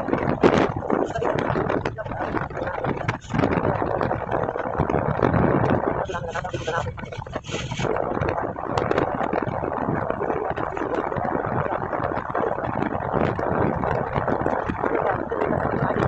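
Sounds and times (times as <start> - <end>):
road noise: 0.0 - 15.9
wind rush: 0.0 - 16.0.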